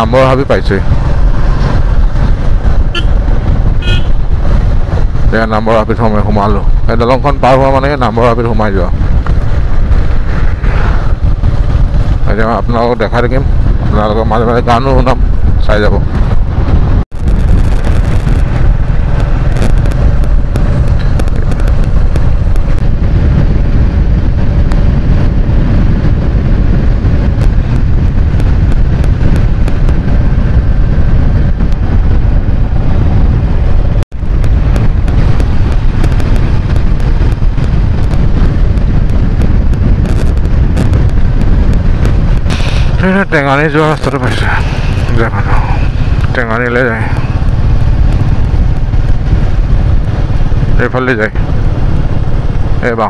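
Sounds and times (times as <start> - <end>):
vehicle rumbling along road: 0.0 - 53.0
wind buffeting microphone: 0.0 - 53.0
crackling pops: 17.2 - 23.0, 27.3 - 30.1, 34.1 - 52.8.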